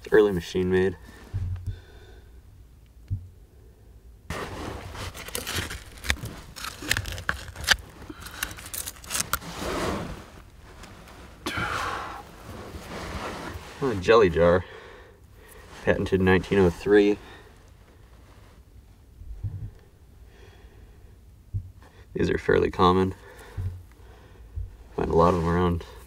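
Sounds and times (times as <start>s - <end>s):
hand tool scraping soil: 4.3s - 14.2s, 25.0s - 26.0s
grit clicking and clinking: 5.2s - 9.4s.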